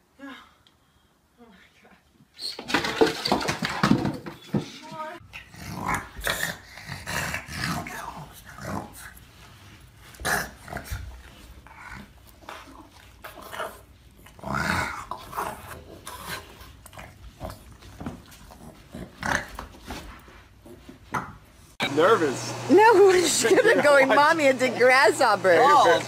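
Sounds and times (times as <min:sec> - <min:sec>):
dog growling: 0:05.3 - 0:09.2, 0:10.2 - 0:17.7.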